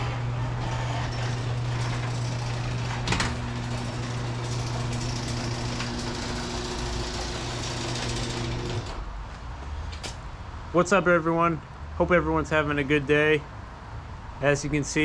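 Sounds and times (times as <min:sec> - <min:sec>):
garage door opener motor hum: 0:00.0 - 0:09.2
garage door running up tracks: 0:00.0 - 0:09.2.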